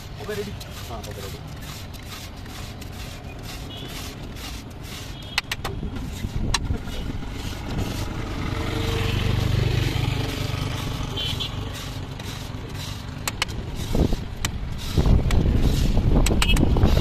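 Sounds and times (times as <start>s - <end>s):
metal scraper on iron pan: 0.0s - 17.0s
passing vehicle engine rumble: 5.8s - 17.0s.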